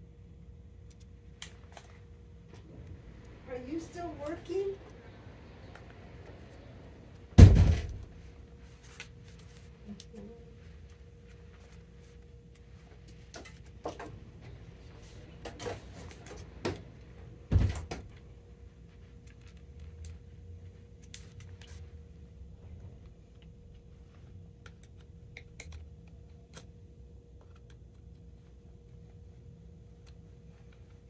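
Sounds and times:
loud thumps: 7.4s - 8.1s.

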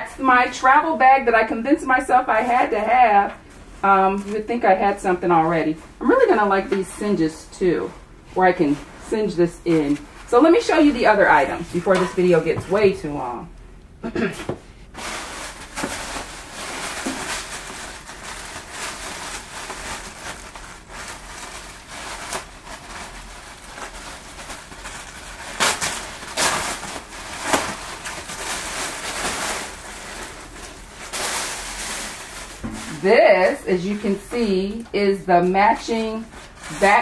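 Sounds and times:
plastic bag crinkling: 14.9s - 37.0s.

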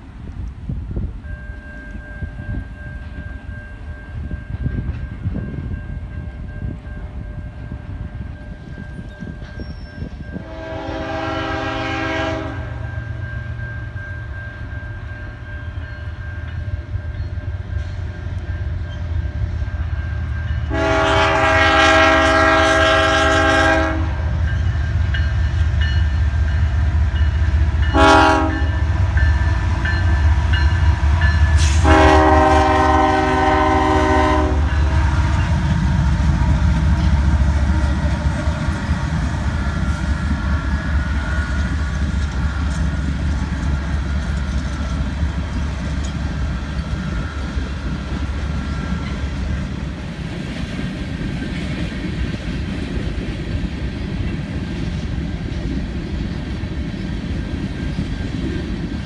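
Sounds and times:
locomotive engines rumbling: 0.0s - 59.0s
locomotive air horn: 10.3s - 13.0s, 20.6s - 24.4s, 27.9s - 29.0s, 31.6s - 36.2s.

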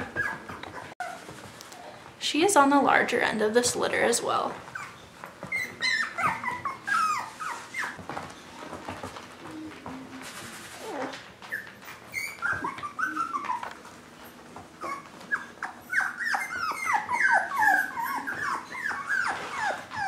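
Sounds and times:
puppies whining and yipping: 0.0s - 1.5s, 4.6s - 9.0s, 10.7s - 20.0s.

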